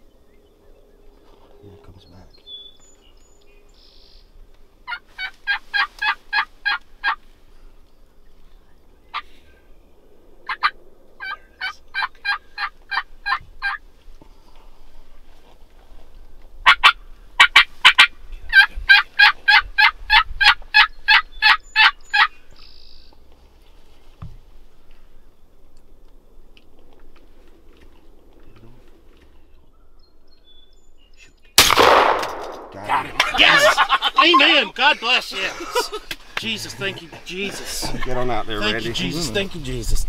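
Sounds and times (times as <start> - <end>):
turkey yelping: 4.9 - 7.2, 10.4 - 13.8, 16.6 - 22.3, 33.1 - 34.6.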